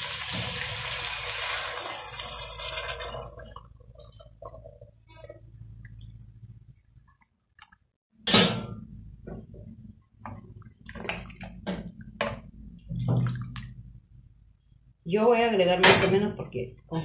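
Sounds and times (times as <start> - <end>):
hot water hissing in pot: 0.0 - 3.1
water trickling and dripping: 3.0 - 7.8.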